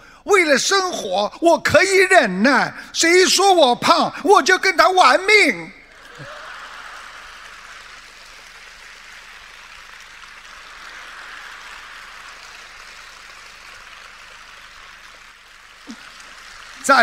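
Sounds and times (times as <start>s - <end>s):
audience applauding: 5.8s - 17.0s.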